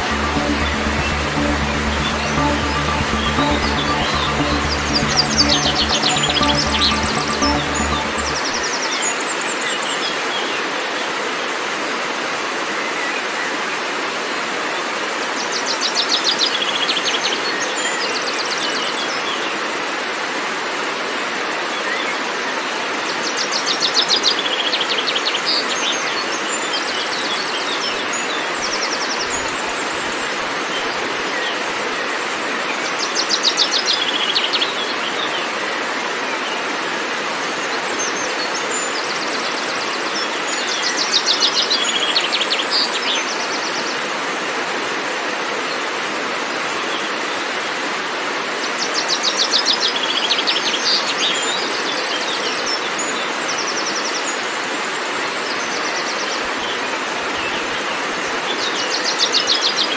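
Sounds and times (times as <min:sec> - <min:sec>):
waterfall rushing over rocks: 0:00.0 - 0:59.9.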